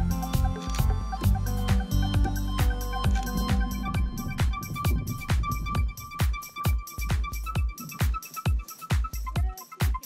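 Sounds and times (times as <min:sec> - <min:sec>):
steady kick drum beat: 0:01.2 - 0:10.0
electronic dance music: 0:01.3 - 0:10.0
high synth notes: 0:01.9 - 0:07.6.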